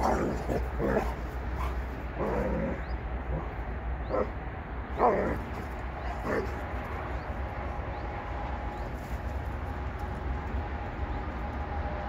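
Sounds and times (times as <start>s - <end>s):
dogs barking and yipping: 0.0s - 7.2s.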